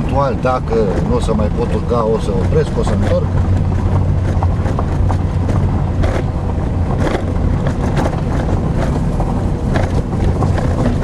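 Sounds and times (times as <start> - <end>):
car engine running under load: 0.0 - 11.0
suspension jolting over bumps: 0.0 - 11.0
stones knocking under tyres: 2.3 - 11.0.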